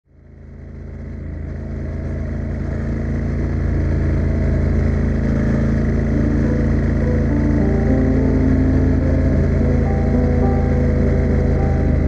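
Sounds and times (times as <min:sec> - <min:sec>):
motorcycle engine running: 0:00.1 - 0:12.0.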